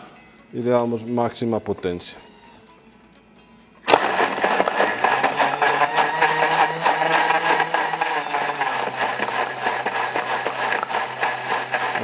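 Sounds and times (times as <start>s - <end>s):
blender motor whirring: 3.9s - 12.0s
frozen pieces knocking jar: 3.9s - 12.0s.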